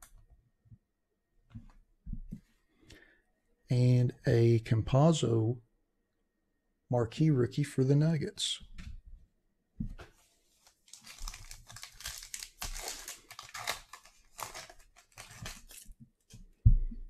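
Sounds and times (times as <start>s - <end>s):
foil wrapper crinkling and tearing: 10.8s - 15.9s.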